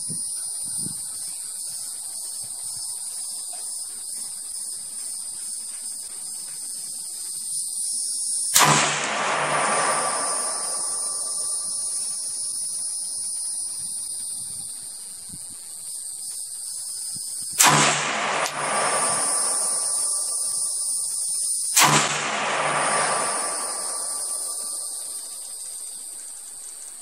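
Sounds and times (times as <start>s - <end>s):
insects buzzing: 0.0s - 27.0s
rifle shots with echo: 8.6s - 12.2s, 17.6s - 20.8s, 21.8s - 25.2s.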